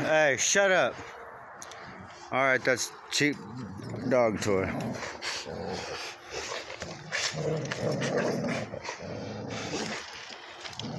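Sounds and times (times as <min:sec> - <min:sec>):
dogs panting: 0:00.8 - 0:10.9
dogs growling low: 0:03.2 - 0:10.9.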